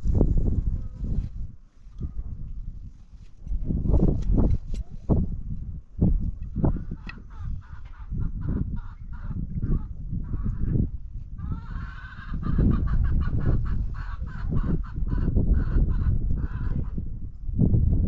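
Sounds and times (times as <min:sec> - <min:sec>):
steady low rumble: 0:00.0 - 0:18.0
fowl calling: 0:06.6 - 0:10.7, 0:11.4 - 0:17.0.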